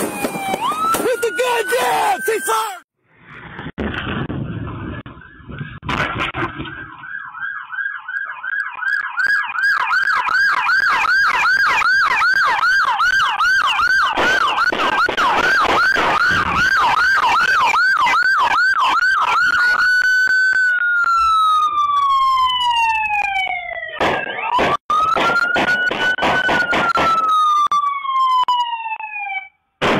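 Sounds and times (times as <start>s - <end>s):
police siren yelping and wailing: 0.0s - 2.8s, 4.9s - 29.6s.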